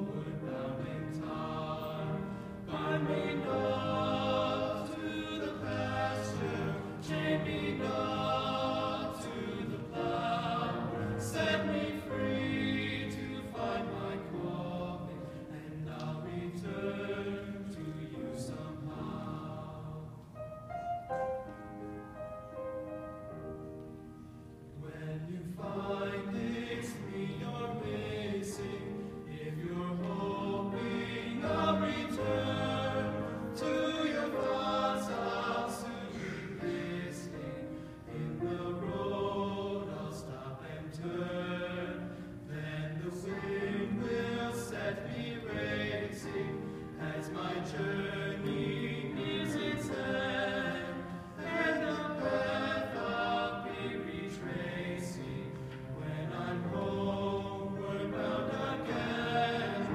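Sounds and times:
choir singing in harmony: 0.0 - 59.9.

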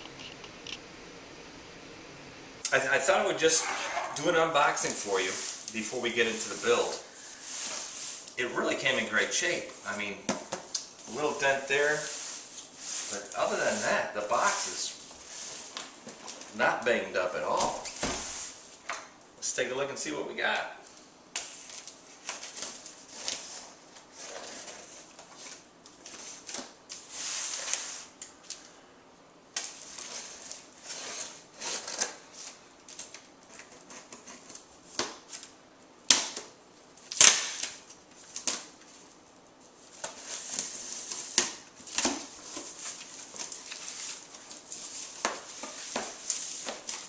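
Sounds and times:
knife scratching tape and cardboard: 30.0 - 32.1.

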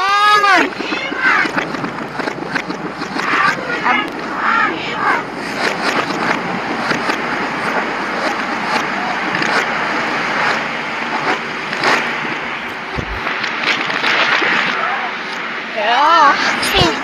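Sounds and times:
crackles: 0.0 - 17.0
distorted hiss: 0.0 - 17.0
low thump: 12.8 - 13.3.

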